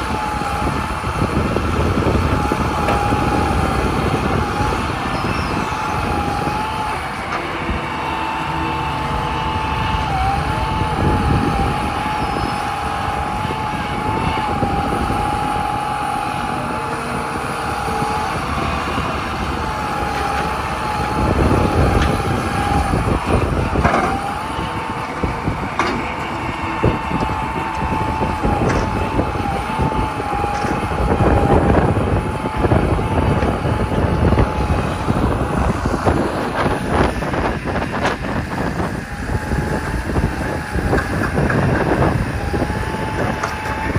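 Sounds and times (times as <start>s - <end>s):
excavator diesel engine running: 0.0s - 43.9s
excavator bucket clanking and scraping: 14.4s - 31.5s.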